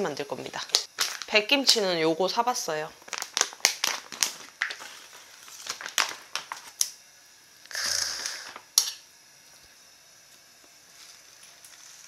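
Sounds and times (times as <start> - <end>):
plastic pouch crinkling: 0.8 - 1.4, 3.0 - 6.9.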